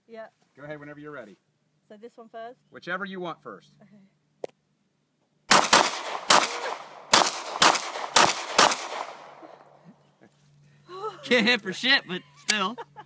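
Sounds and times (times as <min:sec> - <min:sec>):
pistol shots echoing: 0:05.5 - 0:09.4.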